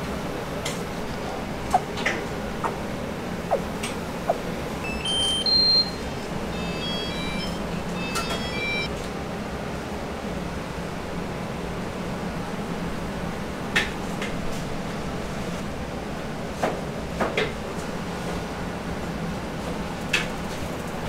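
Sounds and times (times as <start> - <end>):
short electronic beeps: 4.3 - 8.9.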